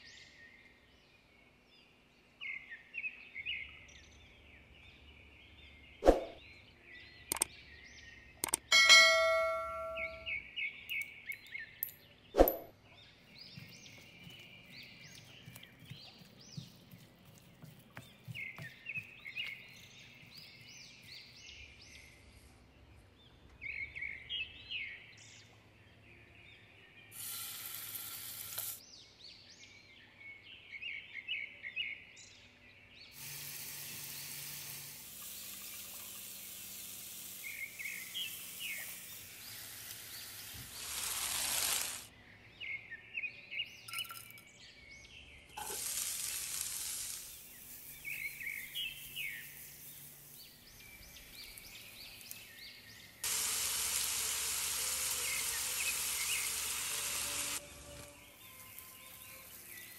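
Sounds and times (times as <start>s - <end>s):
birds chirping: 0.0s - 27.2s, 33.8s - 59.9s
sharp click: 7.3s - 7.5s, 8.4s - 10.2s
bell-like ding: 8.7s - 10.3s
chicken sizzling in hot oil: 35.1s - 42.1s, 45.6s - 47.8s, 53.2s - 57.6s.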